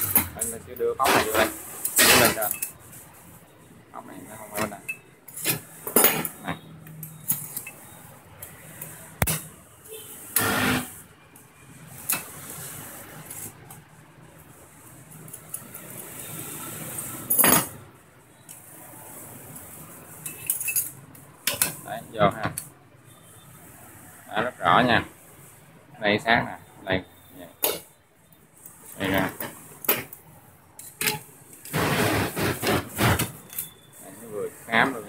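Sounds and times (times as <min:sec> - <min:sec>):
metal clinks scrapes and knocks: 0:00.0 - 0:02.9, 0:04.4 - 0:09.5, 0:17.0 - 0:17.8, 0:20.2 - 0:21.8, 0:28.6 - 0:31.8, 0:33.3 - 0:34.0.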